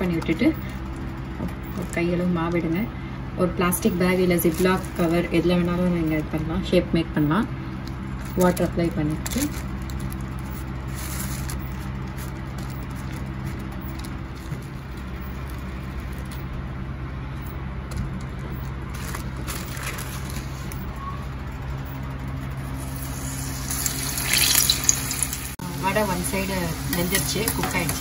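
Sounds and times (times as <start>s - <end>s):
motor or fan humming: 0.0s - 28.0s
plastic sheet crinkling: 4.0s - 6.3s, 7.8s - 16.4s, 18.6s - 20.8s.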